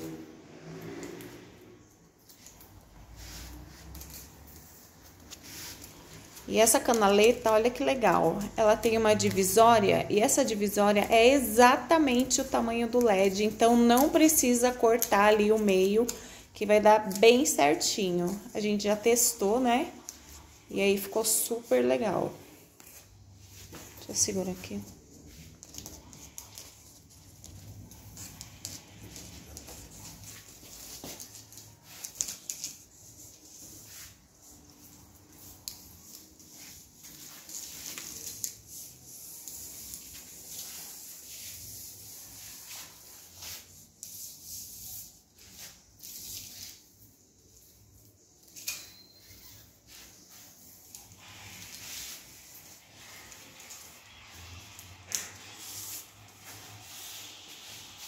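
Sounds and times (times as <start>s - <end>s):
rubbing and rustling of plastic: 0.0s - 58.0s.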